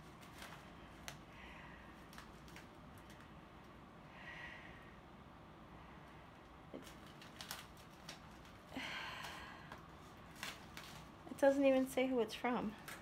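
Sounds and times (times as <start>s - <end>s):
packaging rustle: 0.0s - 1.2s, 2.0s - 3.4s, 6.8s - 11.5s
packaging clicks and crinkles: 2.0s - 3.7s, 6.8s - 11.4s.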